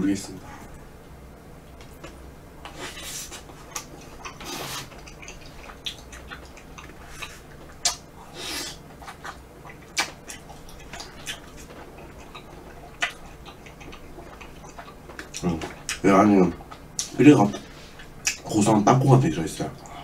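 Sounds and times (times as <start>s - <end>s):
wet chewing and smacking: 1.7s - 18.6s
slurping: 2.0s - 16.0s
sharp mouth clicks: 3.7s - 16.0s, 18.2s - 18.4s.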